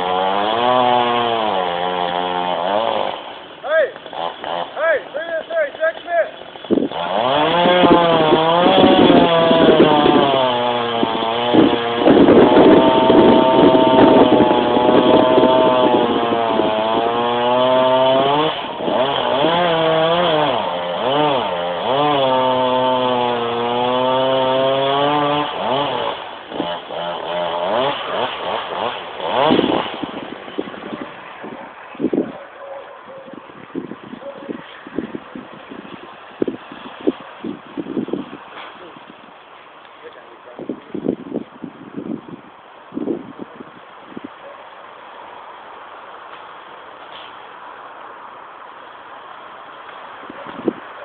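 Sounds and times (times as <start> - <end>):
chainsaw cutting wood: 0.0 - 32.3, 33.3 - 40.2.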